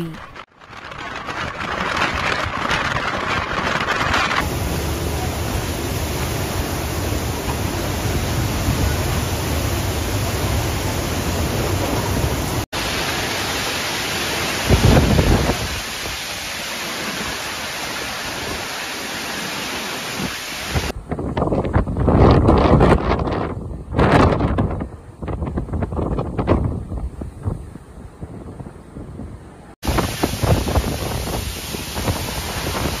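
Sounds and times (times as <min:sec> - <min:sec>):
driving rain: 0:00.0 - 0:21.0, 0:29.8 - 0:33.0
strong wind: 0:00.0 - 0:33.0
wind buffeting microphone: 0:00.2 - 0:12.7, 0:14.5 - 0:16.3, 0:20.1 - 0:33.0.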